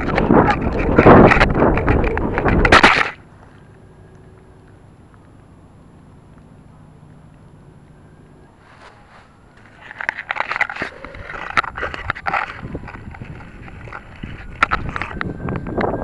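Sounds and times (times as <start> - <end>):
grass rustling against plastic: 8.5 - 16.0.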